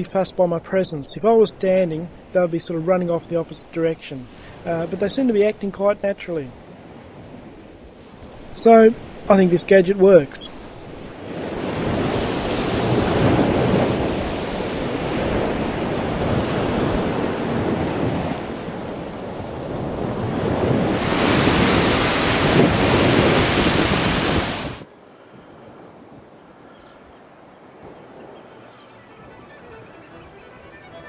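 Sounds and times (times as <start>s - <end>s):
surf washing on sandy beach: 0.0s - 26.3s
wind rumbling on microphone: 10.5s - 29.4s.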